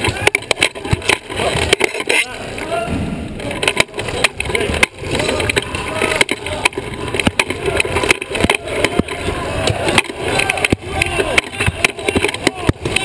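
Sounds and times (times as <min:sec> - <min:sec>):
sharp knocks and clicks: 0:00.0 - 0:02.2, 0:03.4 - 0:13.0.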